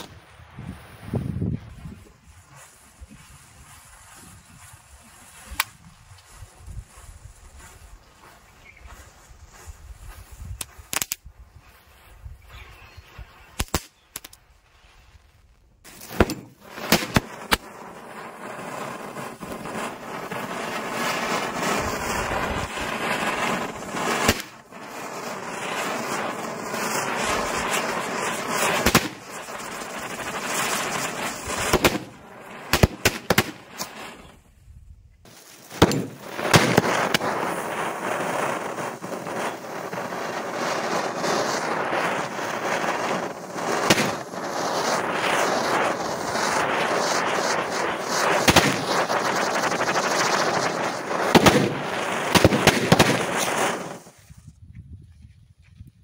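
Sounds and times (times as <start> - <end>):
spinner firework hissing: 0.0 - 34.6, 35.2 - 54.4
firecracker bangs: 15.9 - 34.3, 35.3 - 54.2.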